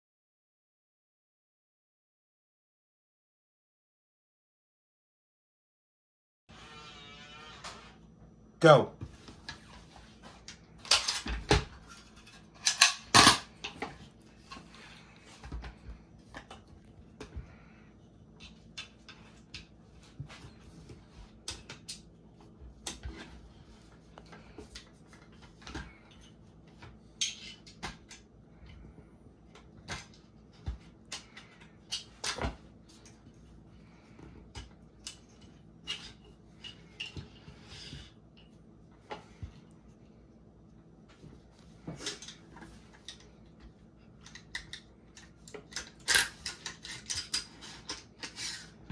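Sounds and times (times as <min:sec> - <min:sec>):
rifle parts clicking and clacking: 0:12.0 - 0:13.8.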